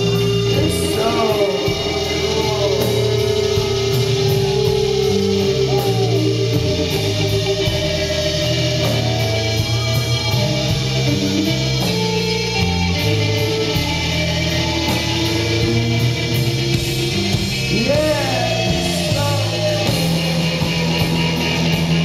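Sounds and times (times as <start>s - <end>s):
person singing: 0.0s - 9.0s, 17.7s - 21.4s
bass and drums: 0.0s - 22.0s
distorted electric guitars: 0.0s - 22.0s.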